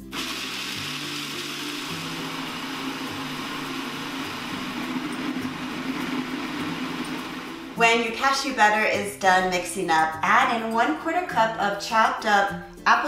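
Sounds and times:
food processor motor grinding: 0.0 - 7.8
soft background music: 0.0 - 13.0.

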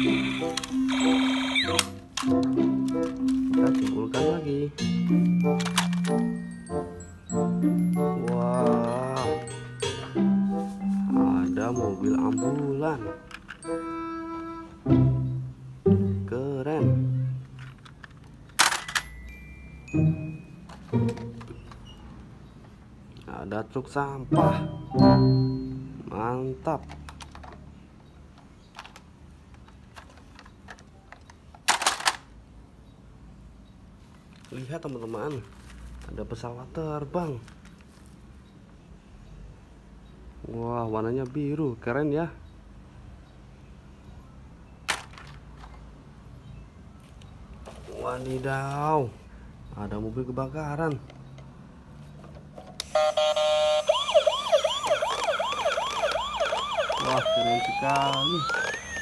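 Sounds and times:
toy siren wailing: 0.0 - 2.0, 52.8 - 59.0
plastic toys clicking and tapping: 0.0 - 6.4, 8.2 - 10.0, 12.1 - 13.7, 17.4 - 19.2, 26.6 - 27.7, 28.3 - 32.4, 44.8 - 45.9, 54.9 - 59.0.

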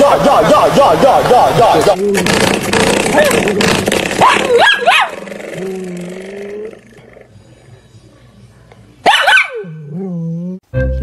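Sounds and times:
animal low moaning call: 5.4 - 7.8, 9.8 - 10.6.

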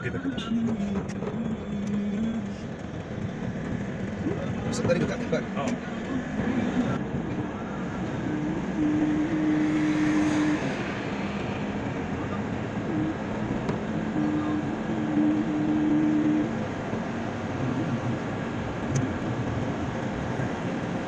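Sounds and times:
car road and engine noise: 0.0 - 21.0
long held musical notes: 5.8 - 16.6.

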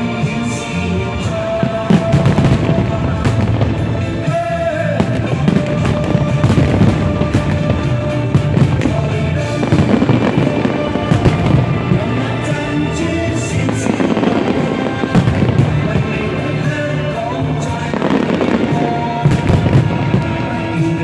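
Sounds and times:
fireworks booms and bangs: 0.0 - 21.0
music playing: 0.0 - 21.0.

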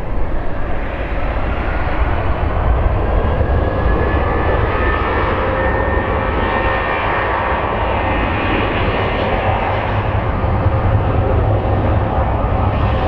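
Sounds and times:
jet engines at takeoff thrust: 0.0 - 13.0.

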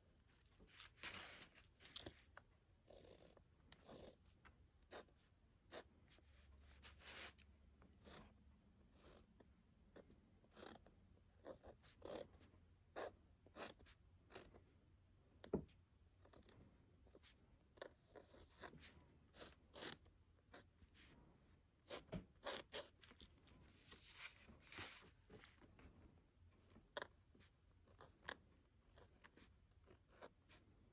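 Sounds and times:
pen writing on card: 13.0 - 14.6, 16.3 - 21.1, 21.8 - 23.2.

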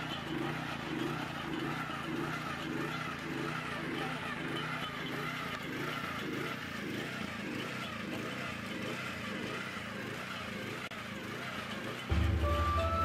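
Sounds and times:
small petrol engine running: 0.0 - 13.0
music: 12.1 - 13.0.

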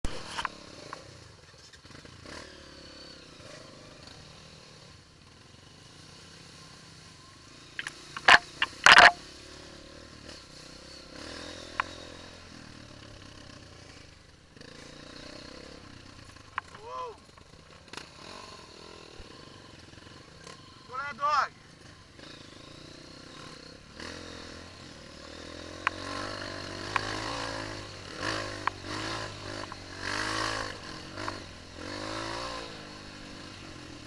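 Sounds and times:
motorcycle engine running: 0.0 - 34.0
clattering from motorcycle: 0.1 - 2.4, 7.8 - 9.4, 14.6 - 19.2, 25.6 - 34.0.

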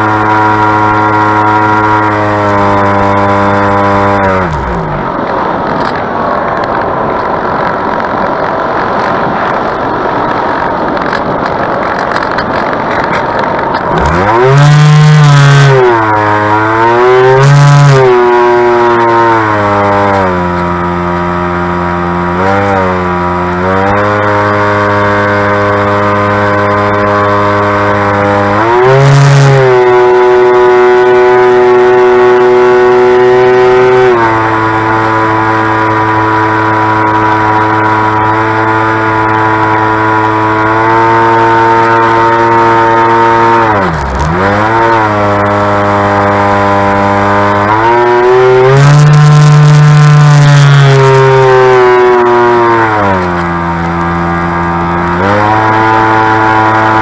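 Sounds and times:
electric motor and propeller whine: 0.0 - 57.0
wind rush: 0.2 - 17.3.

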